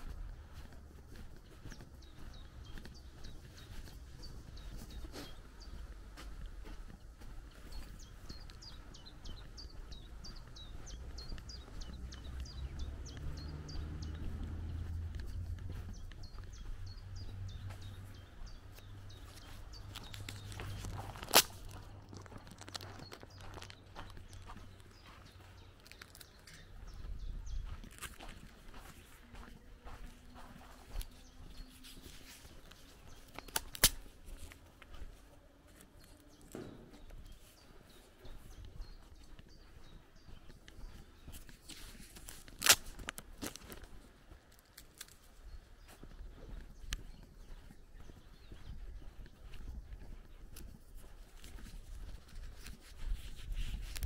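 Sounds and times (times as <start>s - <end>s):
soft footsteps: 0.0s - 54.0s
songbird calling: 7.0s - 21.8s.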